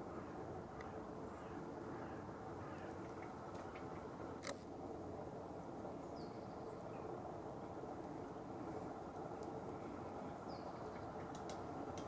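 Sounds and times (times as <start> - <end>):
woodpecker clicks: 10.8 - 12.0.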